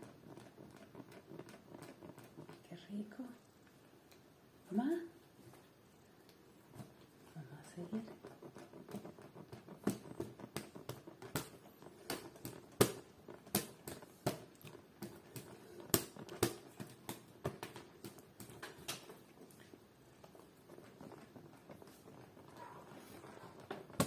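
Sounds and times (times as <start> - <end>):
hand fan clacking and flapping: 0.0 - 2.7, 7.7 - 24.0.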